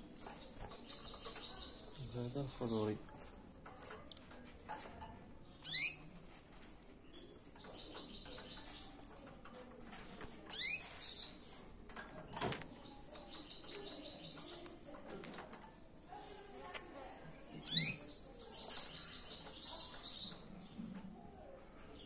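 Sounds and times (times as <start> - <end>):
finches chirping: 5.6 - 6.0, 10.5 - 11.5.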